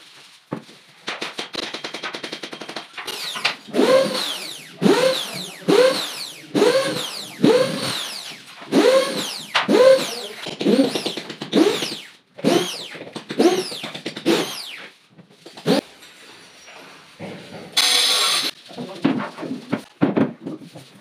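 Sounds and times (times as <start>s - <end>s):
power drill driving screws: 3.1s - 14.9s, 15.6s - 15.8s, 17.8s - 18.6s.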